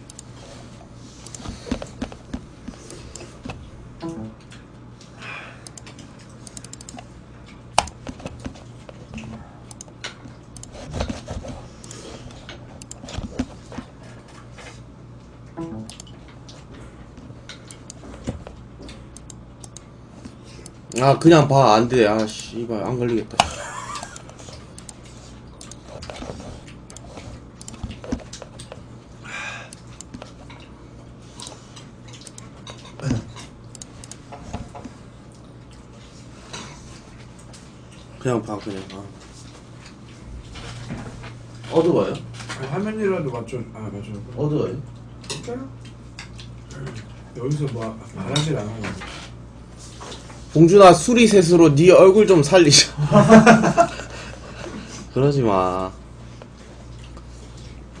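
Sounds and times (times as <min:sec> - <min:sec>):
keyboard and mouse clicking: 0:00.0 - 0:00.3, 0:01.2 - 0:04.2, 0:05.6 - 0:07.0, 0:07.8 - 0:13.6, 0:15.6 - 0:16.1, 0:17.6 - 0:19.9, 0:23.4 - 0:25.0, 0:25.6 - 0:28.8, 0:32.2 - 0:32.5, 0:33.7 - 0:34.2
low steady hum: 0:00.0 - 0:58.0.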